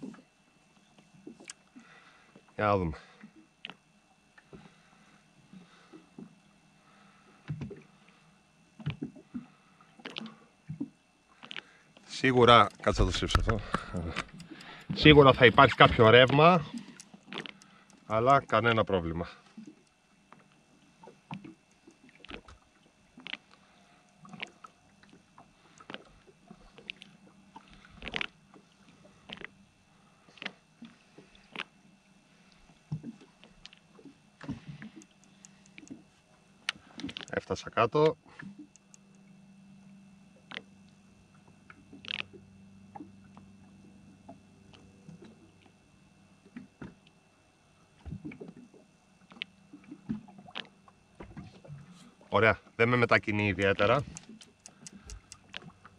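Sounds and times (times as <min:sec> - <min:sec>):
steady low hum: 0:00.0 - 0:55.9
water lapping at hull: 0:00.0 - 0:55.9
small knocks and clicks: 0:53.6 - 0:55.7.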